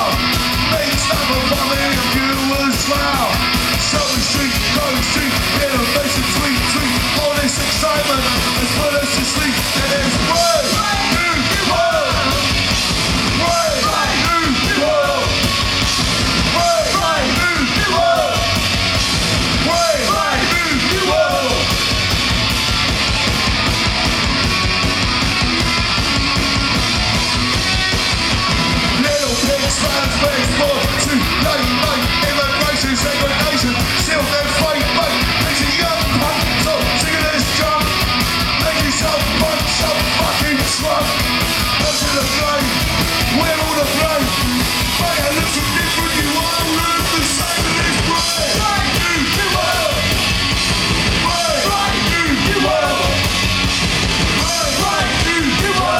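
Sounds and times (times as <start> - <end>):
man singing: 0.0 - 12.6, 13.3 - 15.4, 16.5 - 18.6, 19.6 - 21.7, 29.0 - 38.0, 38.6 - 50.2, 51.2 - 53.3, 54.4 - 55.9
bass guitar: 0.0 - 55.9
drum kit: 0.0 - 55.9
electric guitars: 0.0 - 55.9.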